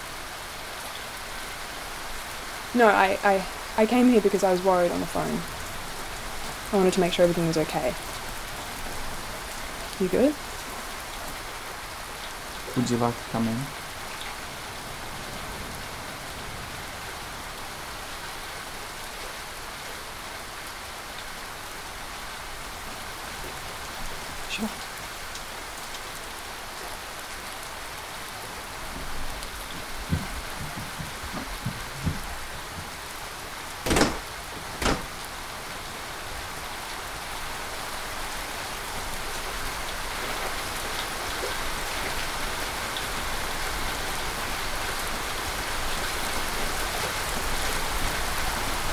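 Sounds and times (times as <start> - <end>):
steady rain falling: 0.0 - 48.9
soft knocks: 29.7 - 33.0, 33.8 - 35.2
loud thumps: 29.8 - 33.0, 33.8 - 35.2.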